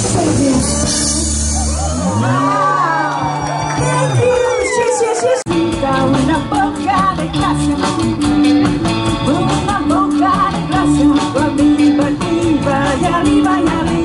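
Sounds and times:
woman singing into a microphone: 0.0s - 1.3s, 3.8s - 8.4s, 9.1s - 14.0s
amplified instrumental backing: 0.0s - 14.0s.

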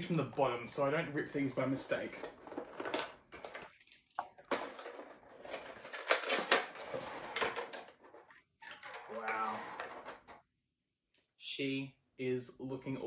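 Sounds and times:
cardboard and plastic rustling: 1.9s - 10.3s.

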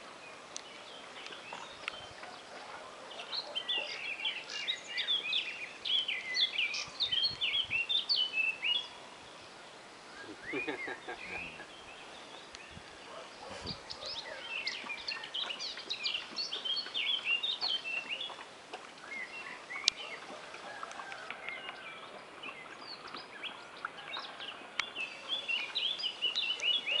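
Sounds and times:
small birds chirping: 0.2s - 27.0s.

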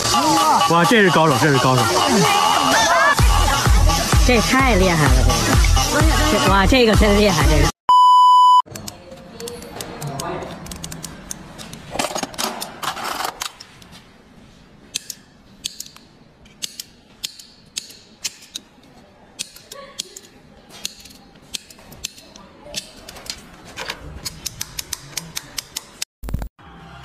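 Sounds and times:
metal cutting tool clicking and snipping: 14.9s - 18.7s, 19.4s - 23.4s, 24.2s - 26.1s.

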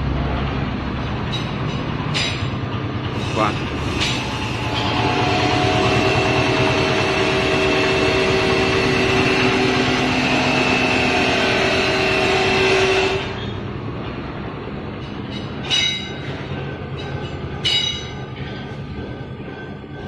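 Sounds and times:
riveting machine whining: 3.0s - 13.8s.

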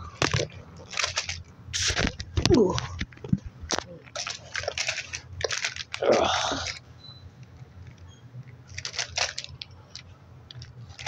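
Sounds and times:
toy figures rustling on carpet: 4.1s - 6.8s, 8.7s - 10.0s.

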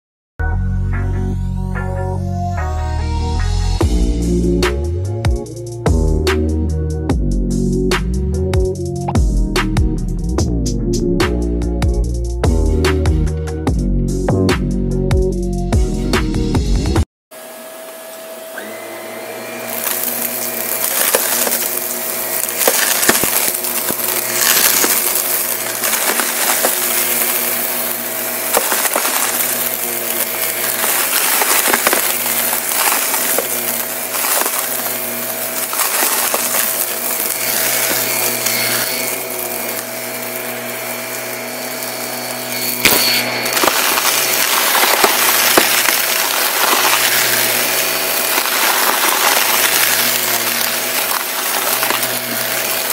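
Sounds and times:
vacuum cleaner motor: 17.3s - 52.9s
debris crackling in vacuum: 19.6s - 52.9s.

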